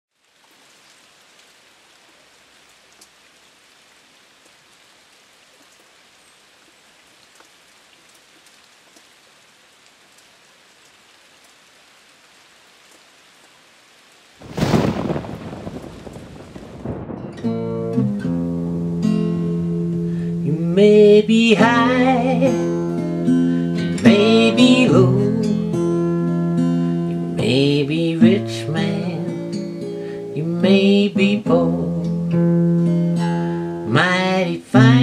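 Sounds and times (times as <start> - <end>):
rain hissing: 0.1 - 35.0
faint ticks: 2.1 - 3.2, 6.6 - 9.2, 9.8 - 11.6
thunderclap: 14.4 - 18.6.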